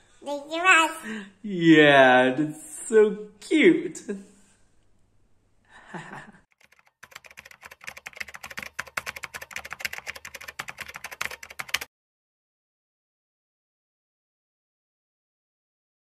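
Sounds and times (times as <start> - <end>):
small child speaking: 0.2 - 1.2
computer keyboard typing: 6.5 - 11.9.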